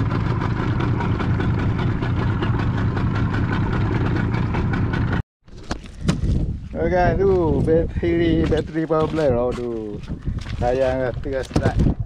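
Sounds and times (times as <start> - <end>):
boat engine running: 0.0 - 5.2.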